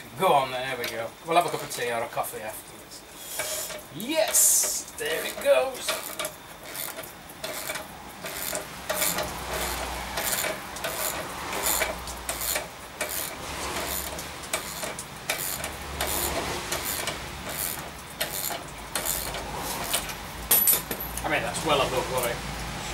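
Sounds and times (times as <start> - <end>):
ratchet wrench rasping clicks: 3.2 - 21.2.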